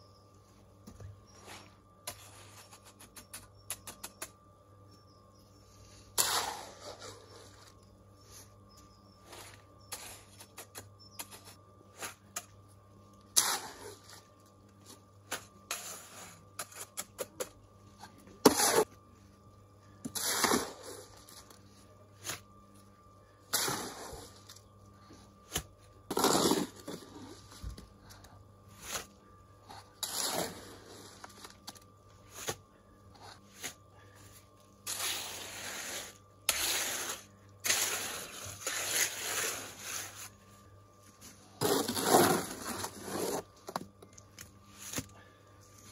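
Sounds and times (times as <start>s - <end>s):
shovel scraping concrete mix: 1.3s - 4.2s, 5.9s - 8.5s, 9.2s - 12.5s, 13.3s - 19.0s, 20.0s - 21.6s, 22.2s - 22.5s, 23.5s - 32.6s, 33.2s - 40.5s, 41.2s - 43.8s.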